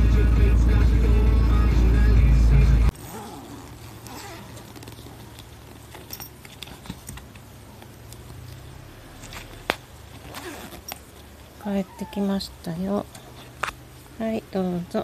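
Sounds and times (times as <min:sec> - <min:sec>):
low hum: 0:00.0 - 0:15.0
pet carrier rustling: 0:02.9 - 0:14.2.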